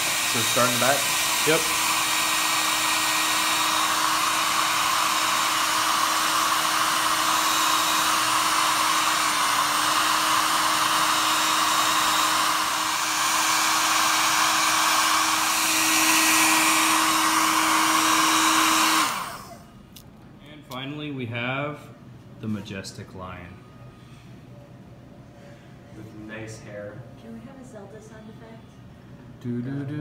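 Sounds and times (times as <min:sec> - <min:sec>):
hair dryer running: 0:00.0 - 0:19.7.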